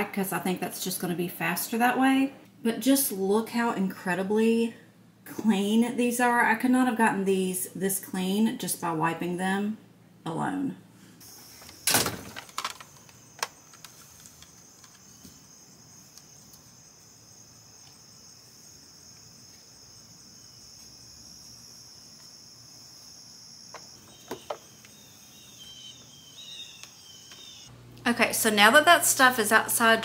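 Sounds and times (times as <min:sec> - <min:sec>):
insects chorus: 0:11.2 - 0:27.7
plastic parts set down: 0:11.6 - 0:15.0.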